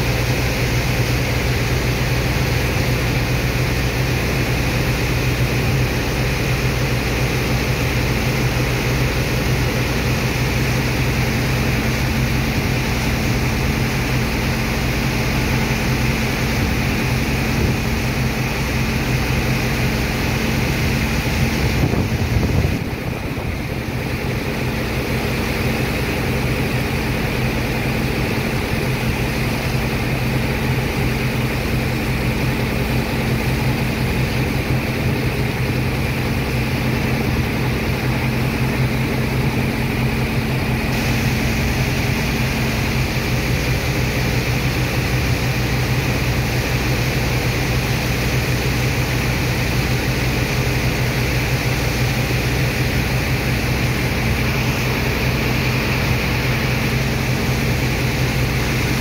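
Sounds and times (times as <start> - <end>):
pump engine humming: 0.0 - 59.0
water jet hissing into sand: 40.9 - 43.8.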